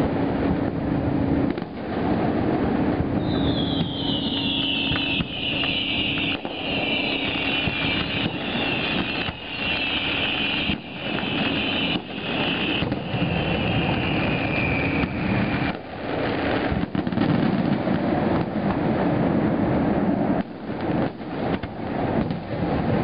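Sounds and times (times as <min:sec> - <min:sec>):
fireworks launching and bursting: 0:00.0 - 0:23.0
high whistles falling in pitch: 0:03.2 - 0:15.8.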